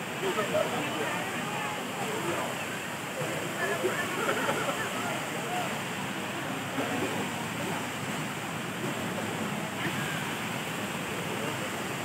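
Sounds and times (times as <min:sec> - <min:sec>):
faint voices of people: 0:00.0 - 0:12.0
waterfall rushing over rocks: 0:00.0 - 0:12.0.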